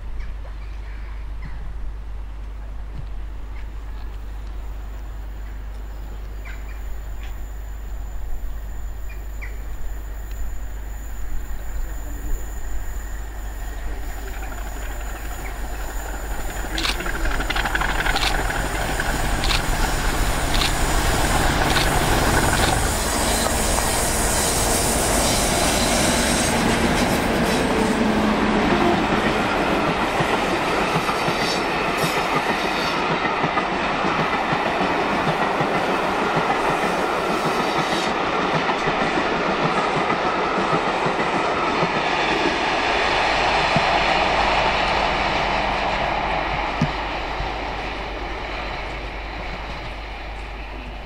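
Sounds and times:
diesel locomotive engine: 0.0 - 51.0
train wheels clattering on rails: 13.7 - 50.9.

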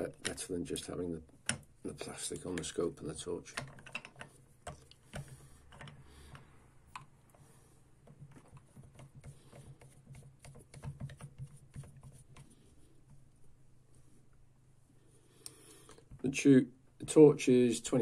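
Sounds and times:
clicks and taps of plastic clamp: 3.5 - 7.1.

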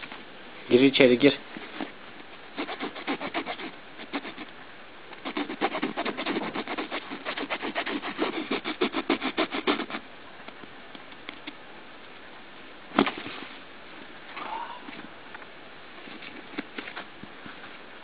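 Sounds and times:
fingernail scratching fabric: 2.6 - 4.5, 5.2 - 10.0.

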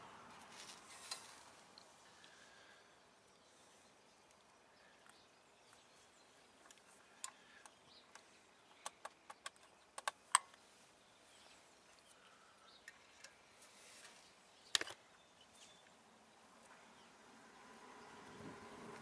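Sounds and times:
metallic clicks and taps: 6.6 - 10.6.

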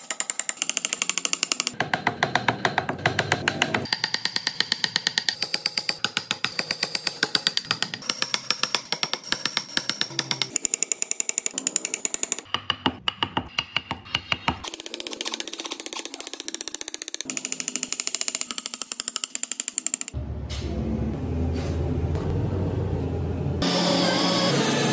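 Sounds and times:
hammer tapping on chisel: 0.0 - 14.7.

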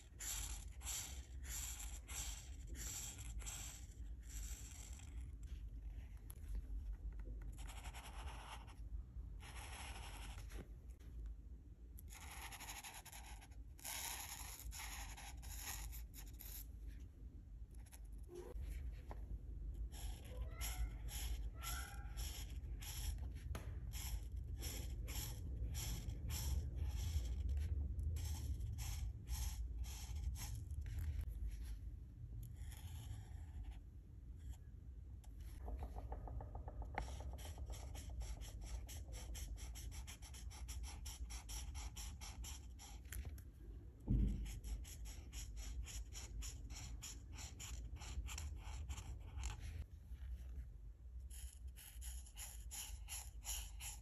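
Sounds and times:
marker scratching on paper: 0.0 - 6.3, 7.4 - 8.8, 9.4 - 10.6, 12.0 - 16.7, 17.8 - 31.7, 32.5 - 33.8, 35.5 - 43.4, 44.3 - 49.9, 51.3 - 54.0
low thump: 44.0 - 44.6.

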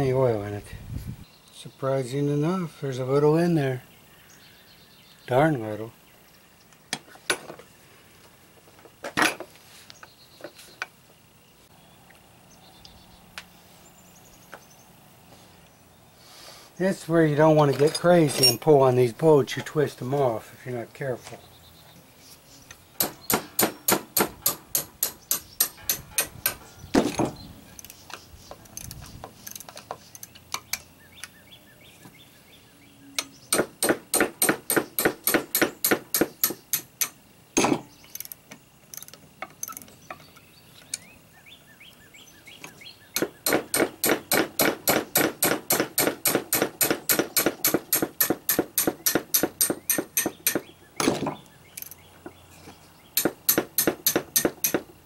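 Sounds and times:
ratchet wrench clicking: 28.6 - 30.8, 38.1 - 39.9, 51.8 - 52.0.

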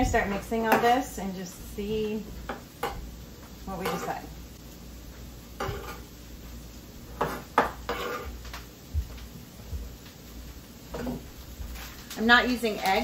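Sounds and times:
dishes and utensils clinking: 5.6 - 6.0.

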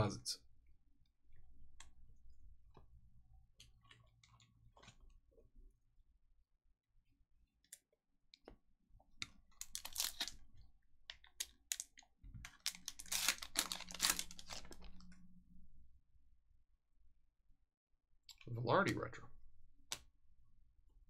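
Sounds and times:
foil wrapper crinkling: 9.6 - 10.5, 11.4 - 15.0.

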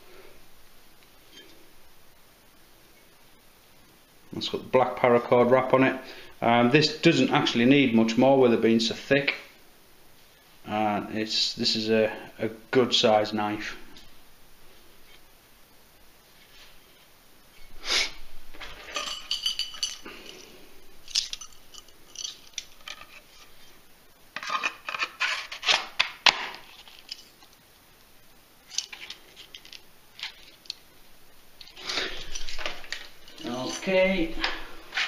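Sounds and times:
metal dog tags clinking: 18.6 - 23.2, 28.7 - 30.8, 31.6 - 33.9.

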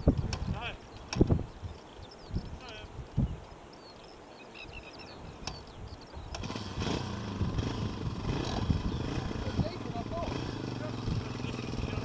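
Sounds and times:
small birds chirping: 0.0 - 12.0
motorcycle engine running: 6.3 - 12.0.

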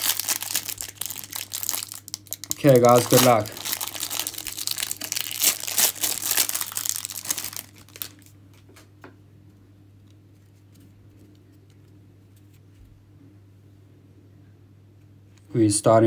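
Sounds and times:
plastic wrapper crinkling and tearing: 0.0 - 8.4.

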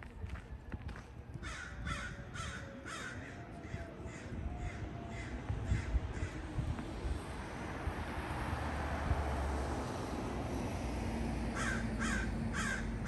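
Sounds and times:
crow cawing: 1.4 - 6.4, 11.6 - 12.9.

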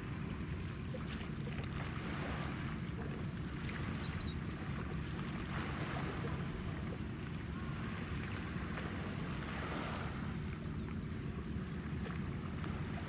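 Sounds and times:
harbour water washing: 0.0 - 13.0.

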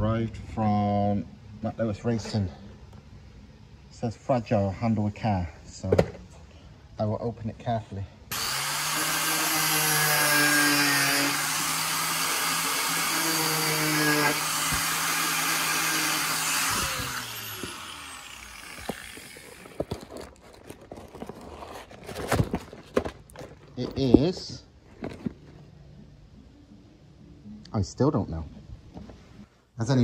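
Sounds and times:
power tool motor running: 8.3 - 20.1
cardboard box being opened: 19.2 - 23.6.

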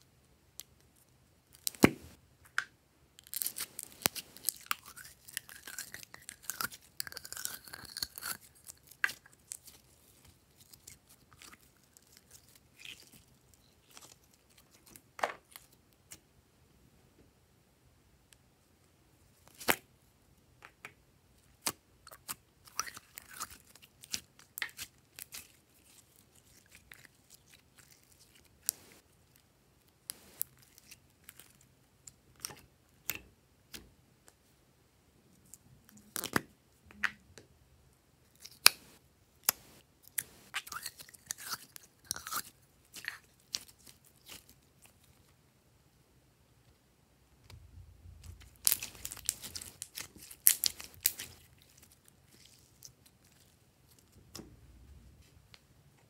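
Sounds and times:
slime squelching and popping: 48.2 - 54.1.

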